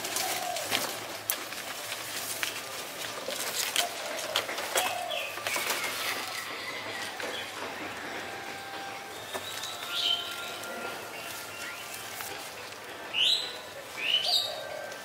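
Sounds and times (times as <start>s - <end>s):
branch snapping: 0.0s - 5.8s
leafy branches rustling: 0.0s - 15.0s
bird calls: 3.2s - 15.0s.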